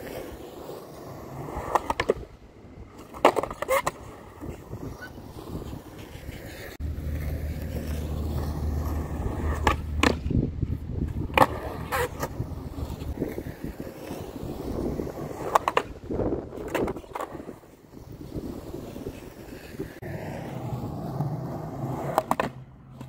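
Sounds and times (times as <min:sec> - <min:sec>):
skateboard wheels rolling on concrete: 0:00.0 - 0:23.0
skateboard deck clacking: 0:00.1 - 0:10.4, 0:11.0 - 0:17.8, 0:18.4 - 0:23.0.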